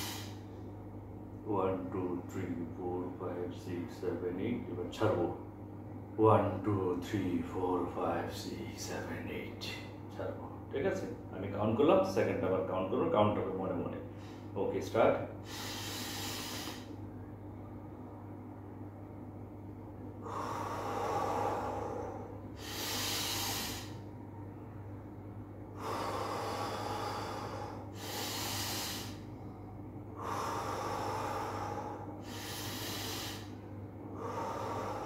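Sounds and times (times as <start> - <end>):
man breathing deeply: 0.0 - 0.4, 14.1 - 14.6, 15.4 - 17.0, 20.2 - 24.2, 25.7 - 35.0
faint steady hum: 0.0 - 35.0.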